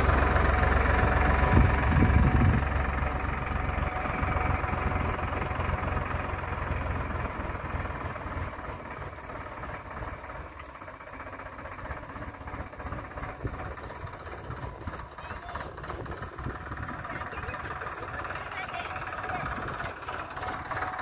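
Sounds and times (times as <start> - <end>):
tractor diesel engine running: 0.0 - 21.0.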